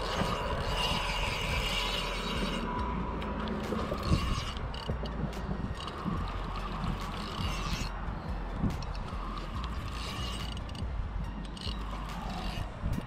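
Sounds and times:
fishing reel clicks: 0.0 - 8.0, 8.7 - 13.0
fishing reel gear whine: 0.0 - 13.0.

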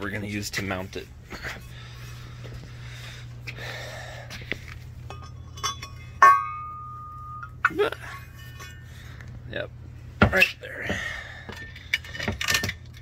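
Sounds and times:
ringing metal clank: 5.1 - 9.0.

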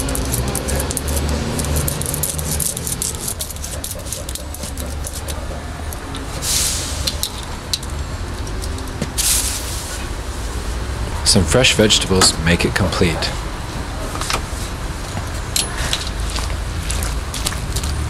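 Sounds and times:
knife scraping dough: 0.1 - 6.8
short hiss: 6.4 - 7.1, 9.2 - 10.0.

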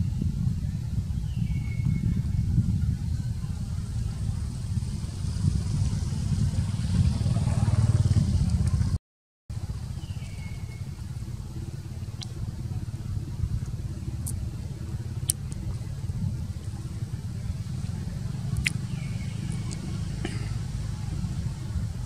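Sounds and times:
low outdoor rumble: 0.0 - 22.0
sharp high ticks: 12.0 - 12.8, 15.2 - 15.9, 18.6 - 19.9.

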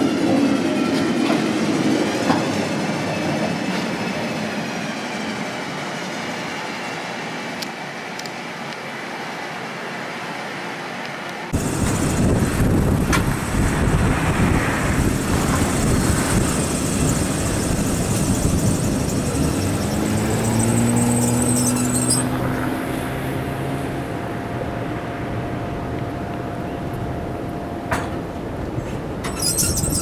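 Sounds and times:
streetcar wheels and motors rumbling: 0.0 - 30.0
high-pitched squeal: 15.8 - 22.8, 29.2 - 30.0
low whine: 22.3 - 28.8.

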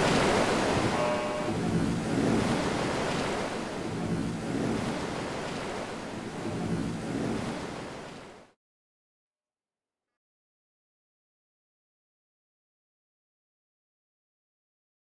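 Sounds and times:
surging water: 0.0 - 8.6.

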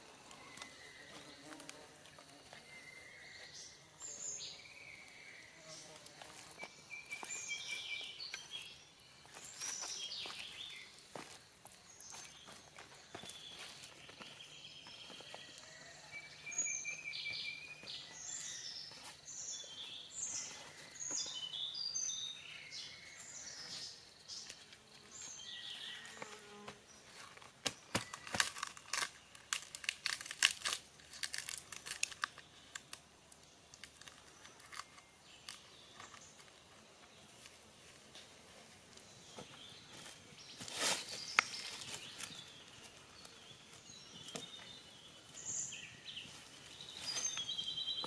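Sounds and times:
forest birds chirping: 0.0 - 48.0
leaf crinkling and crackling: 27.0 - 48.0.

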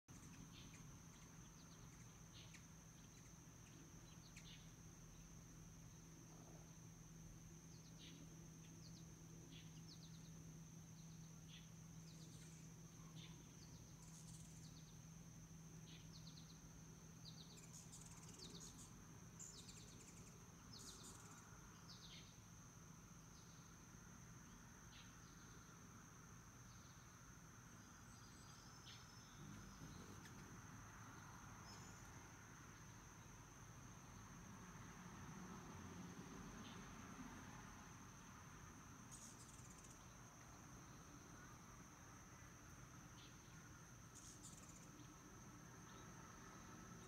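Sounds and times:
high falling bird chirps: 0.1 - 6.0, 15.8 - 22.4
low steady hum: 0.1 - 47.0.

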